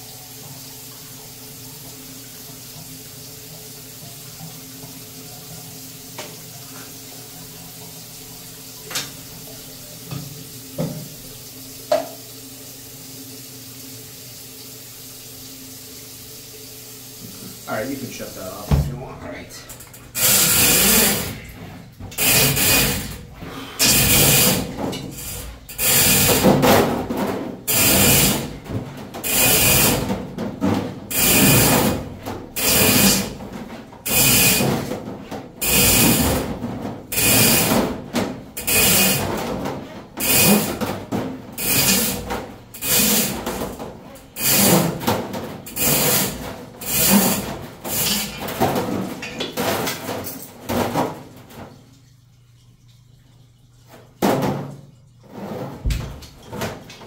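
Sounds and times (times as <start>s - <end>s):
drain cable scraping: 17.2s - 30.1s, 31.1s - 37.8s, 38.6s - 51.8s, 55.2s - 57.0s.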